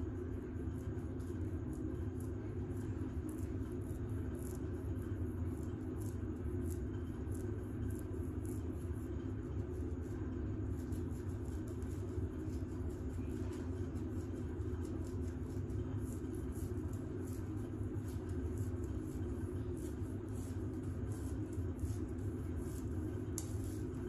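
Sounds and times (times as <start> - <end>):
steady low hum: 0.0 - 24.0
fingernails scratching hair: 10.8 - 24.0.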